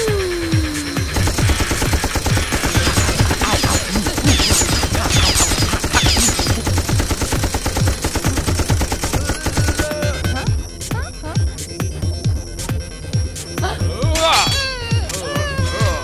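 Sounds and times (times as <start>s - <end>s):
falling whines: 0.0s - 7.6s
rapid machine-gun fire: 1.1s - 10.5s.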